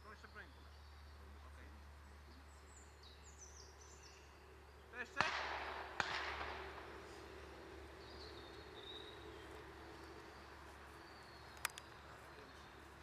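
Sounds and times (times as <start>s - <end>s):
low steady rumble: 0.0s - 13.0s
sharp crack: 5.0s - 8.0s
gunshot with echo: 5.1s - 7.4s.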